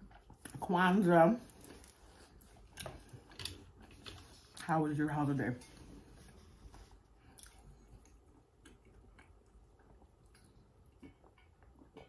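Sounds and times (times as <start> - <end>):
faint chewing mouth clicks: 7.2 - 12.0.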